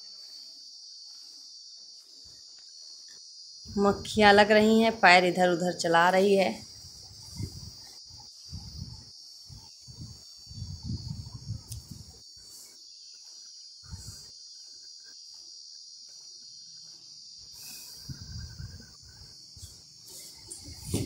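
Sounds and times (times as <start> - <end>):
insects chirring: 0.0 - 21.0
low muffled bumps: 20.5 - 21.0.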